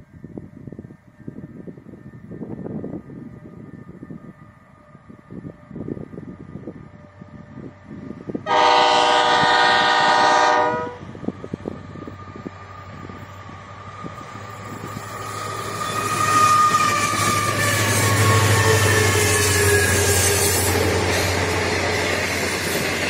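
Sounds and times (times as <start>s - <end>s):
diesel locomotive engines droning: 0.0s - 23.0s
locomotive horn blast: 8.4s - 11.1s.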